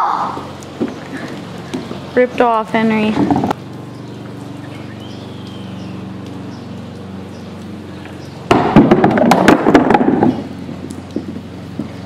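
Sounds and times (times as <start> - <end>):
bowling ball rolling: 3.1 - 3.6, 8.5 - 12.0.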